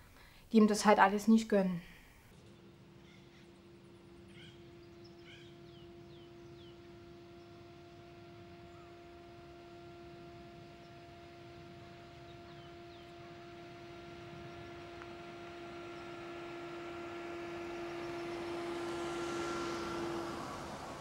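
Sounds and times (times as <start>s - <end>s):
steady hum: 0.0s - 21.0s
car driving past: 15.6s - 21.0s.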